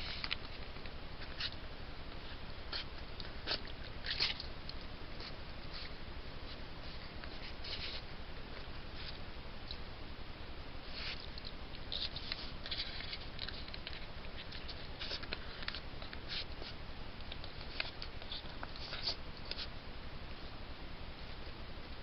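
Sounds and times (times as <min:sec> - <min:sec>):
animal chewing and tearing: 0:00.0 - 0:01.6, 0:02.2 - 0:09.2, 0:10.8 - 0:19.7
steady hiss: 0:00.0 - 0:22.0.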